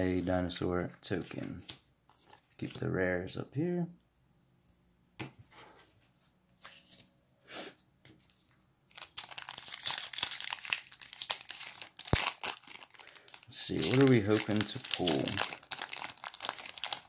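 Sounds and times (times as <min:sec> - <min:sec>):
foil wrapper crinkling and tearing: 0:08.9 - 0:17.0.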